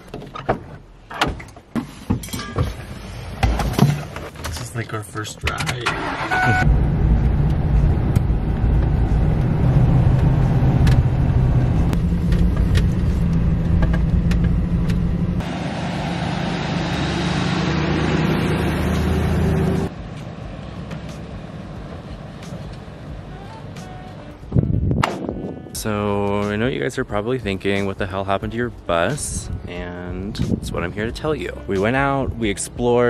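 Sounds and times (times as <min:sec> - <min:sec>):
road noise: 0:02.9 - 0:32.1
van engine drone: 0:06.0 - 0:26.6.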